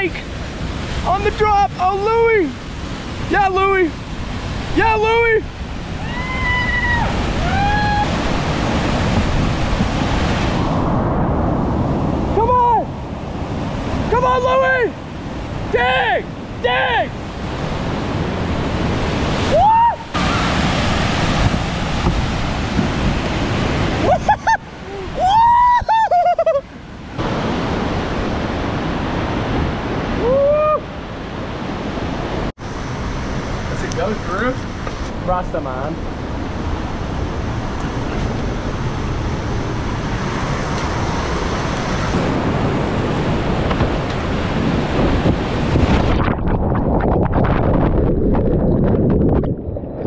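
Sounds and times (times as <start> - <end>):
river rapids rushing: 0.0 - 10.8, 12.1 - 25.8
whitewater rushing into pool: 0.0 - 50.0
person shouting: 19.5 - 20.0, 24.8 - 26.2, 30.2 - 30.8.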